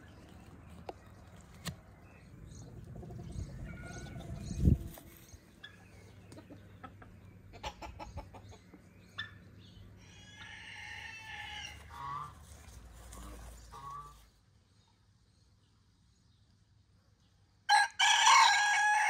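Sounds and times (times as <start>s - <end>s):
hens clucking: 2.3s - 9.4s, 10.0s - 14.2s
rooster crowing: 10.0s - 11.9s, 17.7s - 19.0s.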